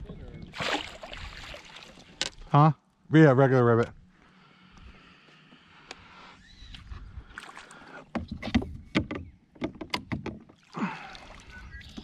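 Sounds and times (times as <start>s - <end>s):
water splashes and knocks: 0.0s - 2.4s, 7.4s - 12.0s.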